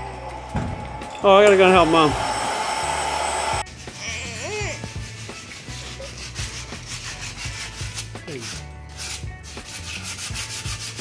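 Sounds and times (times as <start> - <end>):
hand sanding with sandpaper: 3.6 - 11.0.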